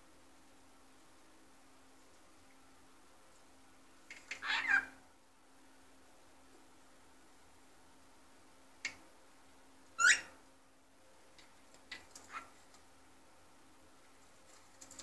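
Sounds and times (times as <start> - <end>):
cockatiel chirping and squawking: 4.2 - 5.0, 10.0 - 10.3, 11.9 - 12.6.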